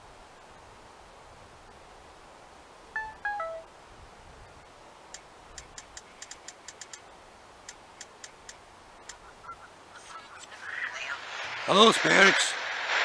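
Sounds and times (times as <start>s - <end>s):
faint sharp device clicks: 5.1s - 7.0s, 7.6s - 9.2s.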